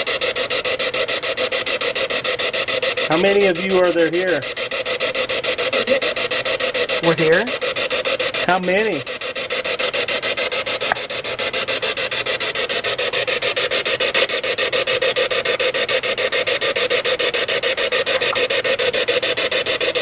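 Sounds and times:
pulsing radio static: 0:03.0 - 0:05.0, 0:05.6 - 0:07.7, 0:08.3 - 0:09.5, 0:18.0 - 0:18.6.

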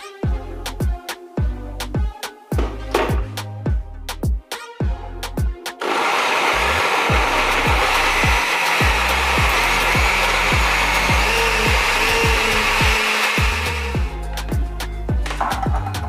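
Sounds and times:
background music with steady beat: 0:00.0 - 0:16.0
blender running: 0:05.8 - 0:14.2.

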